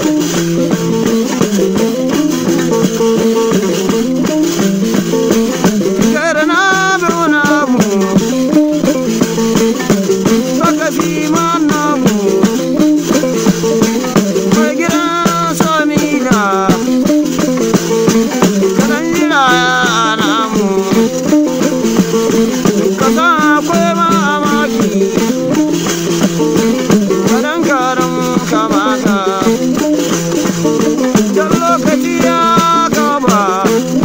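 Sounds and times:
dense rattling rhythm: 0:00.0 - 0:34.0
plucked lutes playing melody: 0:00.0 - 0:34.0
person singing ornamented phrases: 0:06.0 - 0:08.5, 0:10.6 - 0:12.7, 0:14.4 - 0:17.0, 0:18.8 - 0:21.2, 0:23.0 - 0:25.5, 0:27.2 - 0:29.8, 0:31.1 - 0:34.0.

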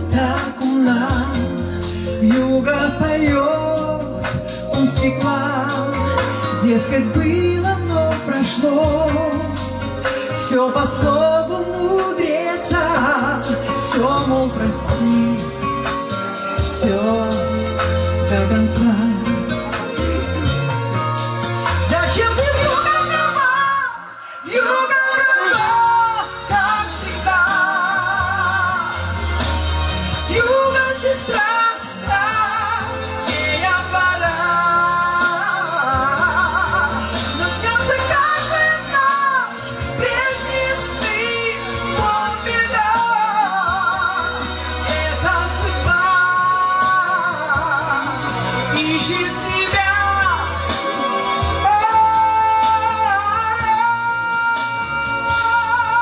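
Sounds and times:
music with deep bass: 0:00.0 - 0:56.0
woman singing with vibrato: 0:00.0 - 0:56.0.

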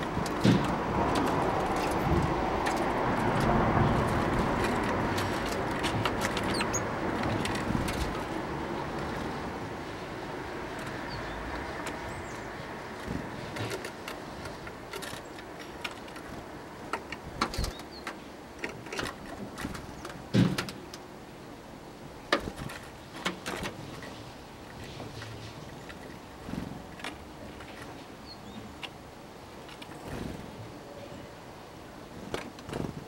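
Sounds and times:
birds knocking on wooden feeder: 0:00.0 - 0:09.4, 0:10.7 - 0:21.0, 0:22.3 - 0:24.1
distant traffic: 0:00.0 - 0:33.0.

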